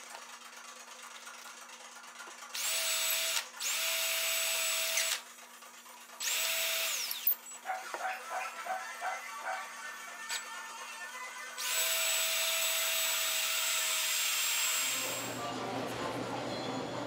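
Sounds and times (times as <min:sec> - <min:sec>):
cordless drill whining: 0:02.6 - 0:05.2, 0:06.2 - 0:07.5, 0:10.0 - 0:15.4.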